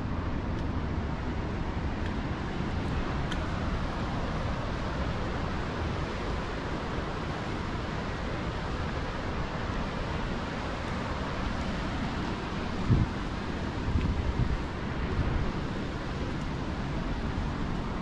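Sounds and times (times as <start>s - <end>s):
wind: 0.0s - 18.0s.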